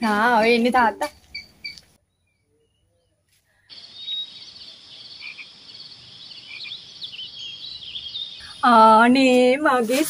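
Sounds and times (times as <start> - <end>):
trilling chorus of frogs or insects: 3.7 - 8.6.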